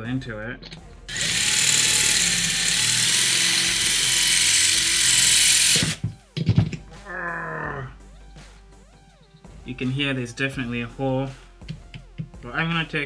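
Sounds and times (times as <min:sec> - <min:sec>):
cordless drill boring through metal: 0:01.1 - 0:06.0.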